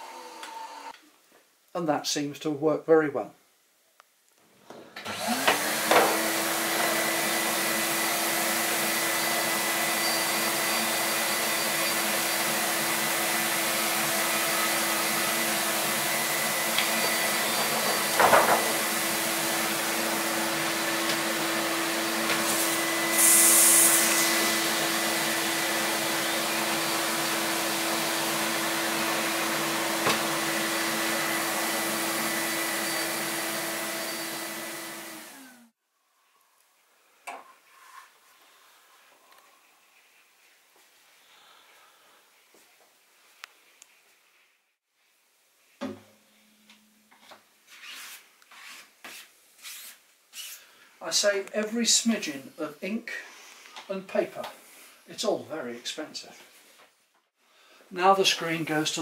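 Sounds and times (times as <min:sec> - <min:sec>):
vacuum motor humming: 0:00.0 - 0:00.9, 0:05.1 - 0:35.7
brief hiss: 0:22.4 - 0:24.3.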